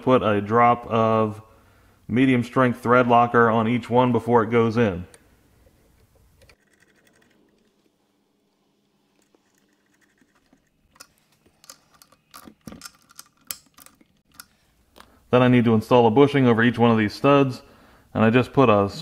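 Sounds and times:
small metallic clicks and scratches: 5.6s - 8.0s, 9.2s - 15.1s.

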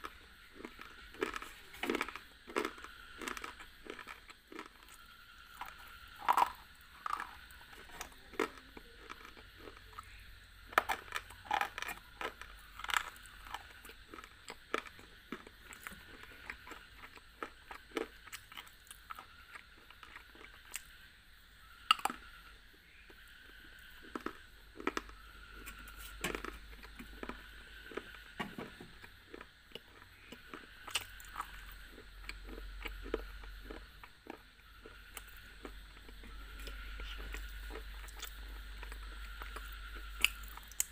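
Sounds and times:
gritty chewing: 0.0s - 21.0s, 23.1s - 40.9s.

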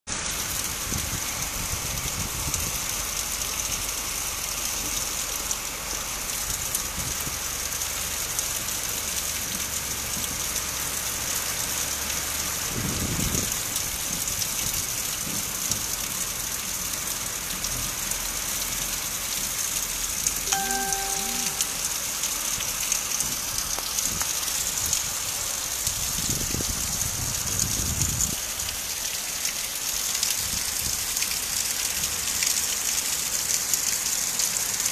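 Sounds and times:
heavy rain pouring: 0.1s - 34.9s
brief pitched tone: 20.5s - 21.9s.

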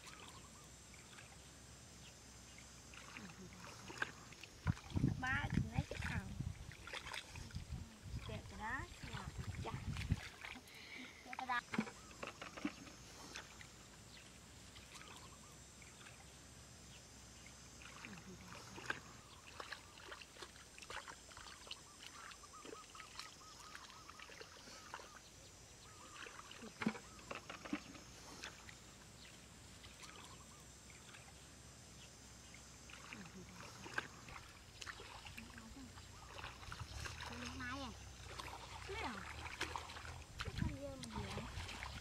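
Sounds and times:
small splashes and slaps: 2.9s - 7.6s, 8.2s - 10.6s, 11.3s - 13.7s, 18.8s - 25.1s, 26.1s - 28.8s, 32.9s - 35.6s, 36.2s - 42.0s
hands squelching through wet mud: 2.9s - 13.7s, 17.8s - 25.2s, 25.9s - 28.8s, 32.9s - 42.0s.

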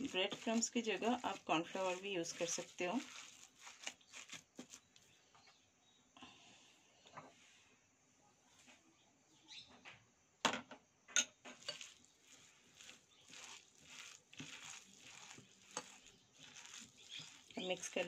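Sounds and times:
mixing swishing strokes: 0.0s - 5.1s, 11.6s - 18.0s.

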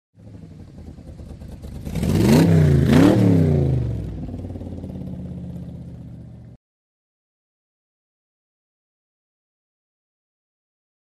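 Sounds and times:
car engine revving: 0.2s - 6.6s.

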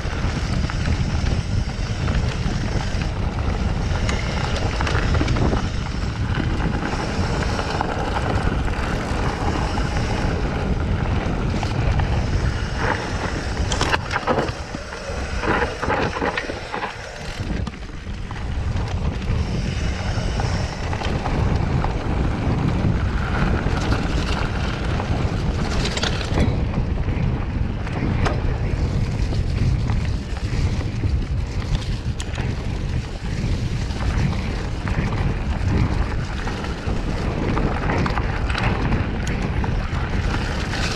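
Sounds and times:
bike rattling and knocking: 0.0s - 40.9s
wind buffeting microphone: 0.0s - 40.9s
tyres rolling over dirt and leaves: 0.2s - 26.7s.

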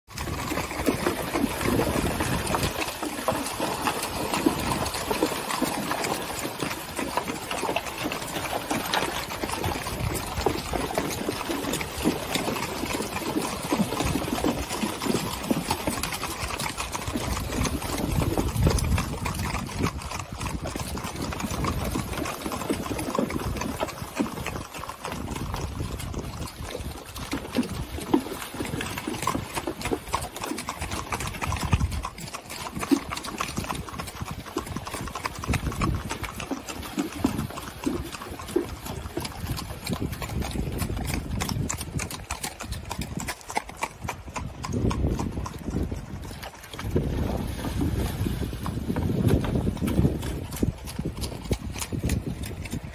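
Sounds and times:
running water: 0.1s - 31.6s
hooves clopping on stony ground: 0.1s - 52.9s
hooves splashing through water: 0.1s - 52.9s.

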